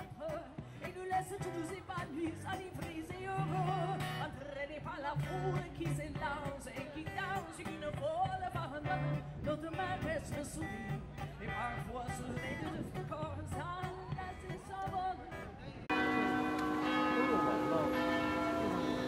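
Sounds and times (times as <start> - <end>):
person singing into microphone: 0.0 - 15.4
acoustic guitar: 0.0 - 17.8.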